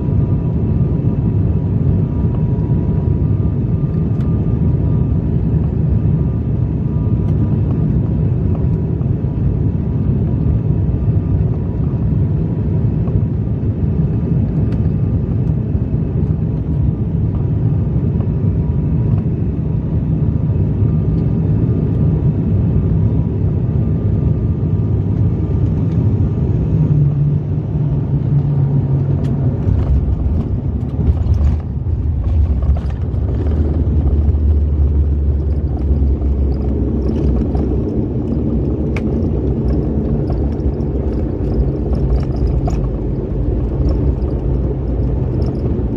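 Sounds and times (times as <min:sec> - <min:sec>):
turboprop engine drone: 0:00.0 - 0:45.9
wheels rumbling on runway: 0:00.0 - 0:45.9.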